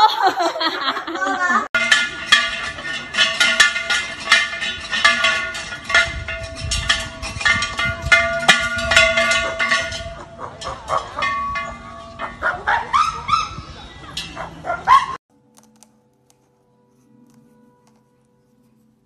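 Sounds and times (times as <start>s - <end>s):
ringing bell-like tones: 1.7s - 15.0s.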